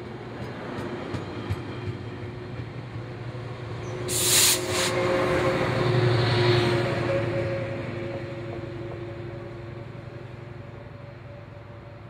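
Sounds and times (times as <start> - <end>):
train engine hum: 0.0 - 12.0
loud hiss: 4.1 - 4.9.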